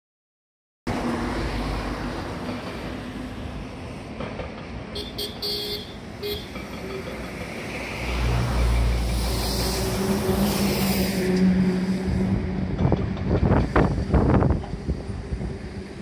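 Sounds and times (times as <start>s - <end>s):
vehicle horn short toots: 5.0s - 6.6s
outdoor rushing noise: 6.6s - 16.0s.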